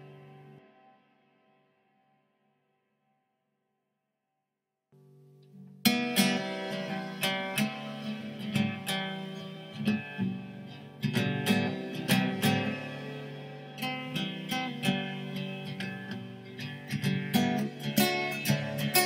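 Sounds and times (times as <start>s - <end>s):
guitar strumming chords: 0.0s - 1.2s, 5.4s - 19.0s.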